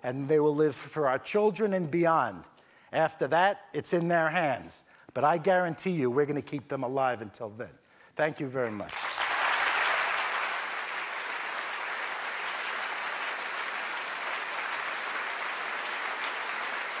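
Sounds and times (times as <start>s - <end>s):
large audience applauding: 8.8s - 17.0s.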